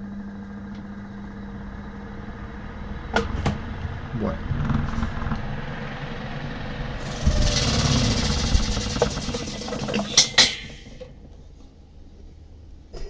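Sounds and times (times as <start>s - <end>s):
spin dryer drum running down: 6.8s - 11.4s
loud hissing rush: 6.9s - 11.1s.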